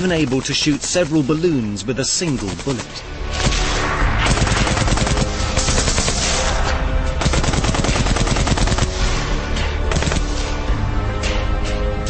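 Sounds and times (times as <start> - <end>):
machine gun firing: 2.1 - 3.6, 4.2 - 6.6, 7.2 - 9.2, 9.9 - 10.5.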